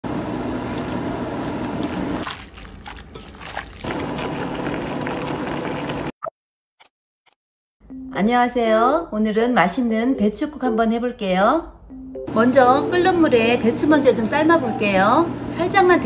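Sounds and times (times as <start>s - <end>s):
water bubbling at a boil: 0.1s - 6.1s.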